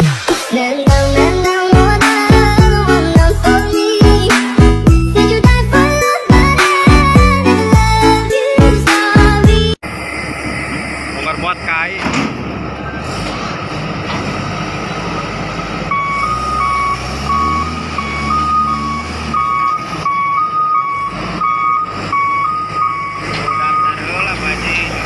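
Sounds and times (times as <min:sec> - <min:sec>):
diesel engine running: 0:00.9 - 0:25.0
two-tone reverse alarm beeping: 0:15.9 - 0:24.3.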